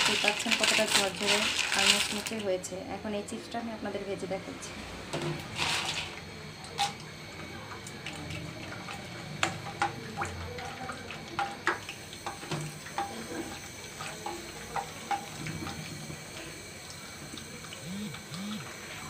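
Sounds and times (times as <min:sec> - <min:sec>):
chips sizzling in hot oil: 0:00.0 - 0:02.4, 0:05.4 - 0:06.2
oil crackling and popping: 0:00.0 - 0:02.5.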